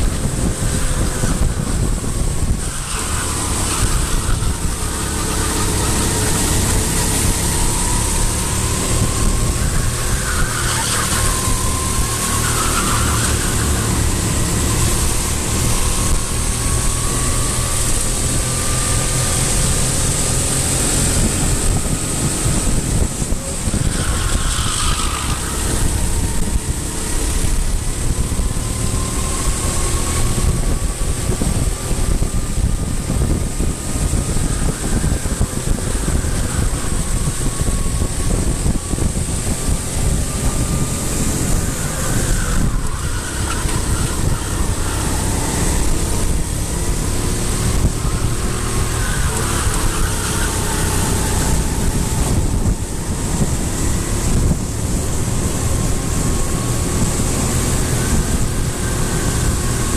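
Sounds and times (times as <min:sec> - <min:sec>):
faint drifting tone: 0:00.0 - 0:59.9
vehicle engines running: 0:00.0 - 0:59.9.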